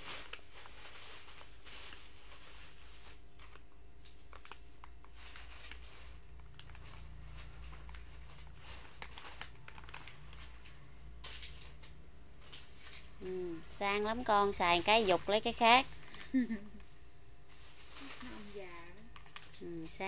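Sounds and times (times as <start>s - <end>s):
plastic packet crinkling: 0.0s - 13.3s, 17.6s - 19.9s.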